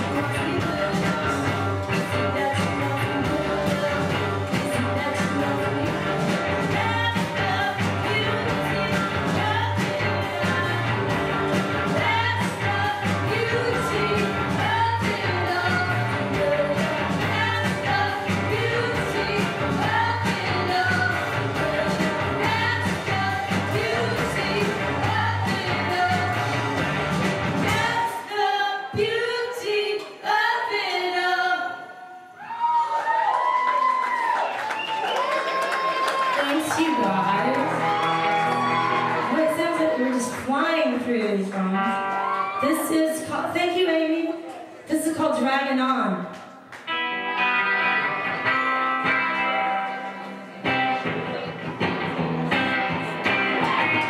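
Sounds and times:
person singing: 0:00.0 - 0:11.2, 0:12.0 - 0:26.6
live rock band playing: 0:00.0 - 0:28.0, 0:37.0 - 0:42.9, 0:46.8 - 0:54.0.

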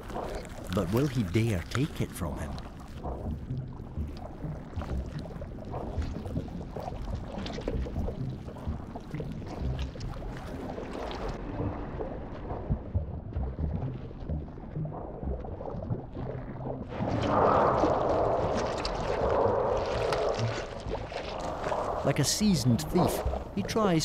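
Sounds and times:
small clicks and gurgles: 0:00.0 - 0:11.4, 0:15.8 - 0:22.2
muffled underwater rumble: 0:00.0 - 0:24.0.

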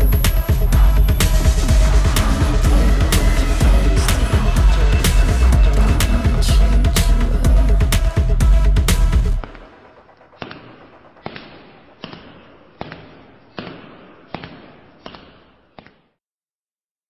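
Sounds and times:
sharp hits with echoing tail: 0:09.3 - 0:15.0.

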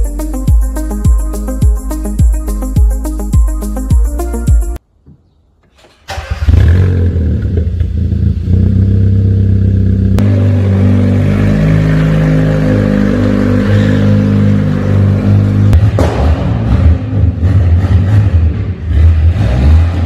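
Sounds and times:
car engine starting and running: 0:05.8 - 0:20.0
car engine while driving: 0:06.5 - 0:20.0.

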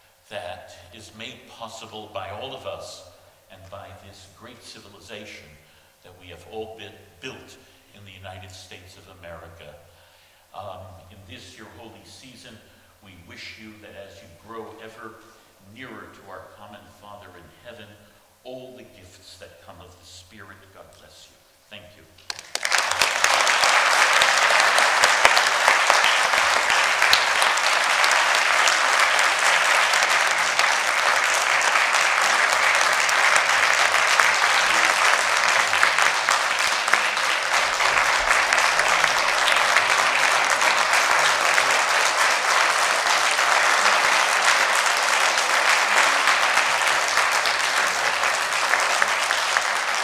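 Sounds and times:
audience applauding: 0:22.2 - 0:50.0.

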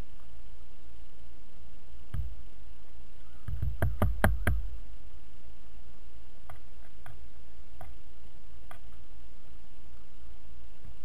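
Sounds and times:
steady low rumble: 0:00.0 - 0:11.0
woodpecker bill tapping: 0:02.1 - 0:04.8, 0:06.4 - 0:08.0.

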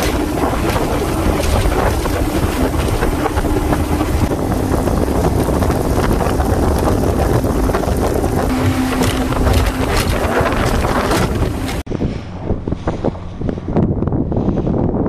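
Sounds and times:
outboard motor running: 0:00.0 - 0:11.9
rush of boat wake: 0:00.0 - 0:15.0
wind buffeting microphone: 0:00.0 - 0:15.0.

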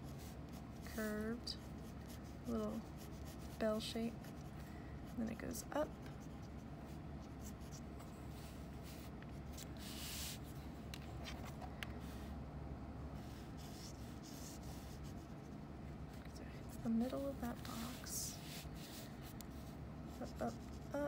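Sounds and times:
steady low hum: 0:00.0 - 0:21.0
pencil lead scratching on paper: 0:00.1 - 0:04.5, 0:05.1 - 0:09.1, 0:13.6 - 0:15.6, 0:20.1 - 0:21.0
hand sliding across paper: 0:08.3 - 0:10.6.

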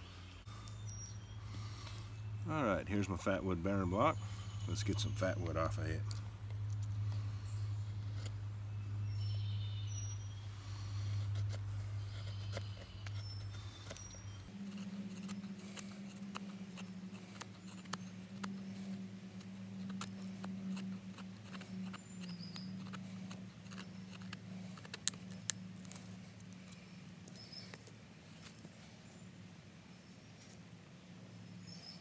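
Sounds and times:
low hum: 0:00.0 - 0:31.7
knife scraping wood: 0:03.8 - 0:29.4.

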